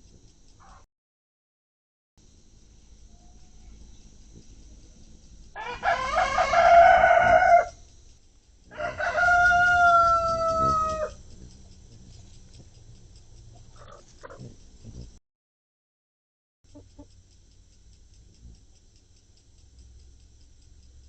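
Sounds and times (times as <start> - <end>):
rooster crowing: 5.6 - 7.8, 8.7 - 11.3.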